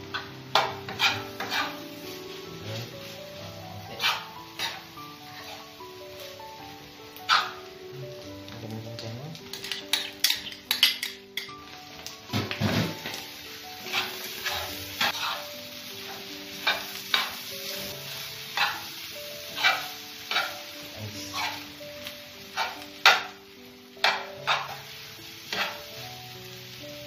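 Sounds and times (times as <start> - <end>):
meat sizzling: 0.0 - 27.0
spatula scraping metal pan: 0.6 - 1.8, 3.9 - 5.7, 13.8 - 15.5, 18.5 - 18.9, 19.5 - 20.6, 21.3 - 21.7, 22.5 - 23.3, 24.0 - 24.8, 25.5 - 25.8.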